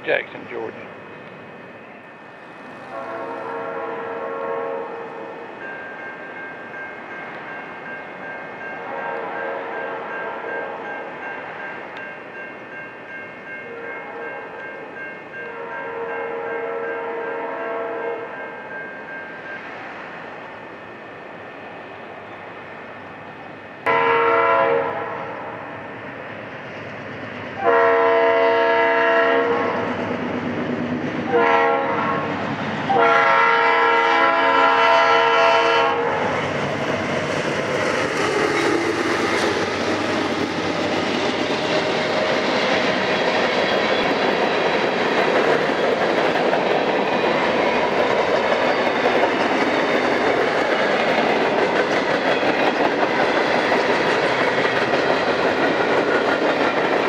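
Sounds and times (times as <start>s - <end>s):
train wheels rumbling on rails: 0.0s - 57.0s
locomotive air horn blasts: 2.9s - 5.3s, 8.8s - 10.1s, 15.5s - 18.3s, 23.9s - 25.4s, 27.6s - 29.8s, 31.3s - 32.3s, 32.9s - 36.2s.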